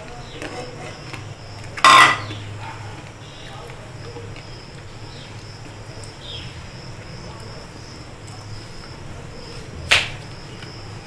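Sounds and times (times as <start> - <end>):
knock on aluminium cooking pot: 1.8 - 2.3.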